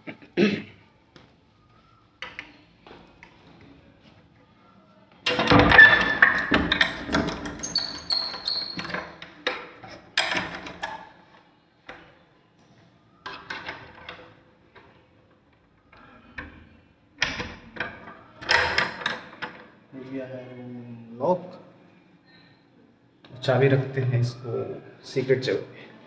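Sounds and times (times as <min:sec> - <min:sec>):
lock rattles and clicks: 0:05.3 - 0:09.2.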